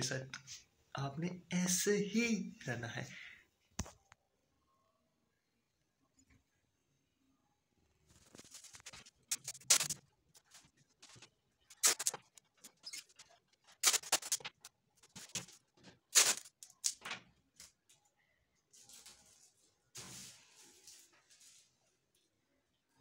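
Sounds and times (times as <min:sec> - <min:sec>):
paper and tape crinkling and tearing: 0:08.1 - 0:17.9, 0:18.7 - 0:21.9.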